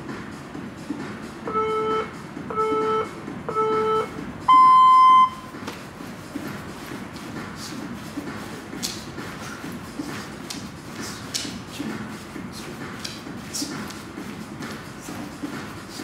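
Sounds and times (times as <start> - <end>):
short low timer beeps: 1.5 - 5.4
long high timer beep: 1.5 - 5.5.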